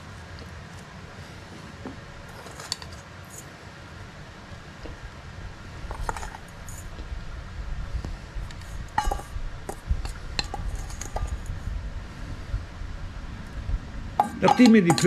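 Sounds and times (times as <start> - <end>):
low steady rumble: 0.0 - 15.0
metal spoon clinking in steel bowl: 9.0 - 11.5, 14.2 - 15.0.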